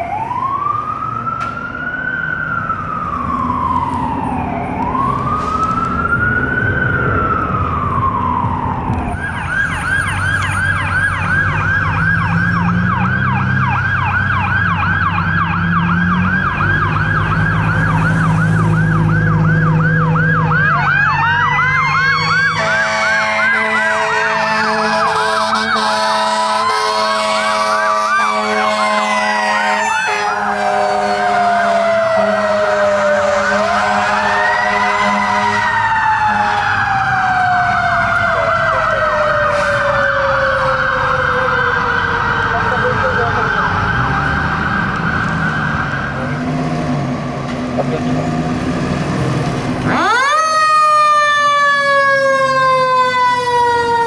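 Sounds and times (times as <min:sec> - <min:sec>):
diesel engine rumble: 0:00.0 - 0:22.3, 0:32.8 - 0:54.0
fire truck siren: 0:00.0 - 0:54.0
air horn blast: 0:22.6 - 0:36.6.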